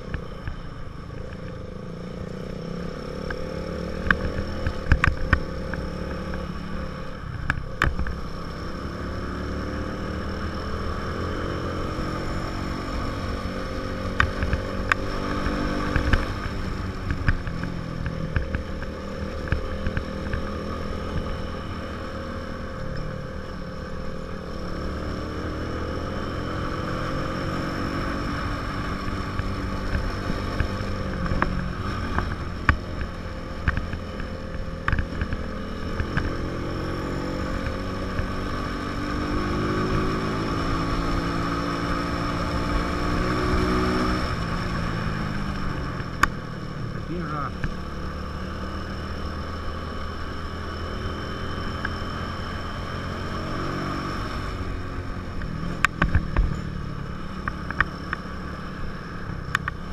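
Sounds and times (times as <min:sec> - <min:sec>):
motorcycle engine running: 0:00.0 - 0:59.9
sharp clicks and knocks: 0:04.0 - 0:06.5, 0:07.3 - 0:08.2, 0:29.2 - 0:36.6, 0:55.3 - 0:56.7.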